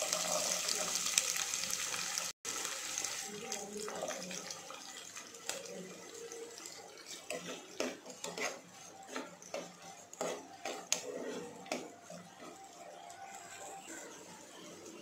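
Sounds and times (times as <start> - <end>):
spatula scraping a pot: 6.2 - 15.0.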